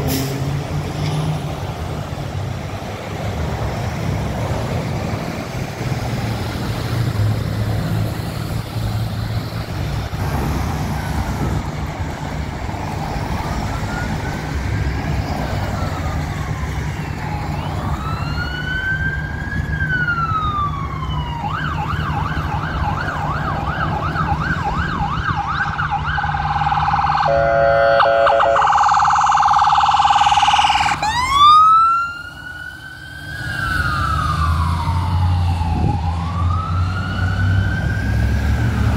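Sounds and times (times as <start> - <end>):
road traffic: 0.0 - 38.9
ambulance siren: 12.4 - 38.9.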